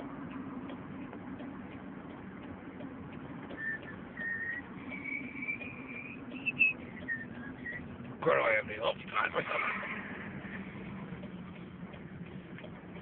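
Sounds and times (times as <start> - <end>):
faint regular ticking: 0.0 - 13.0
steady low hum: 0.0 - 13.0
person whistling: 3.6 - 7.8.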